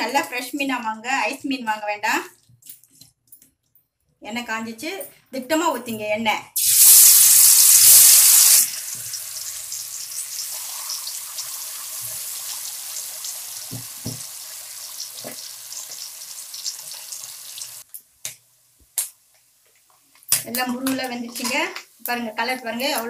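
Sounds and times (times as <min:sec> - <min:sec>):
fish deep-frying in hot oil: 0:06.6 - 0:17.9.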